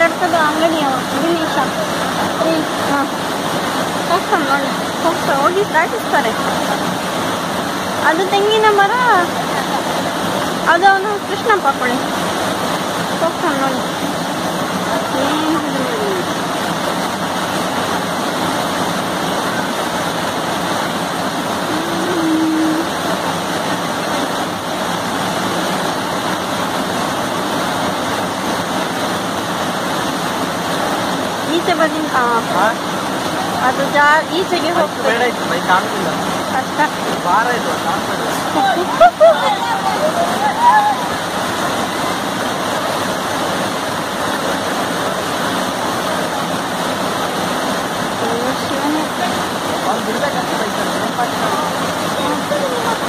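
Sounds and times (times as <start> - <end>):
floodwater roaring: 0.0 - 53.0.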